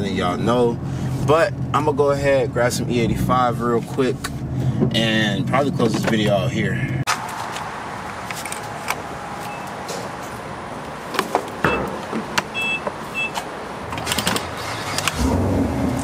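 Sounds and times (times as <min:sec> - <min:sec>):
outdoor background noise: 0:00.0 - 0:16.0
fuel pump beeping: 0:09.4 - 0:09.8, 0:11.6 - 0:13.4.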